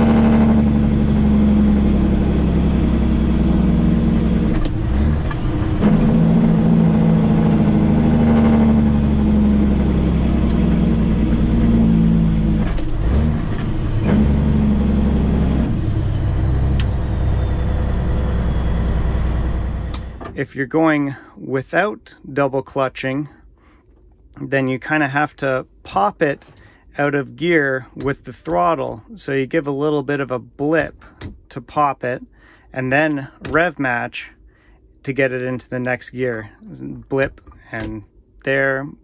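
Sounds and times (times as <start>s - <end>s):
truck diesel engine whining: 0.0s - 20.7s.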